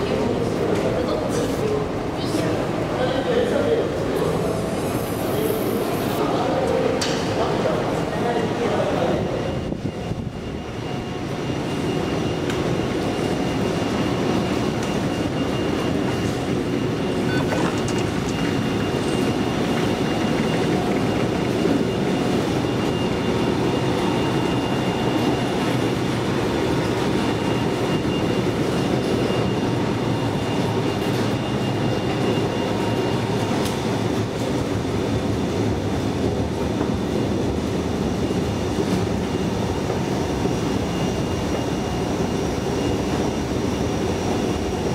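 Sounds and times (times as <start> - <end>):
faint high whine: 2.2 - 44.9
mechanical rumble and hiss: 3.0 - 6.6.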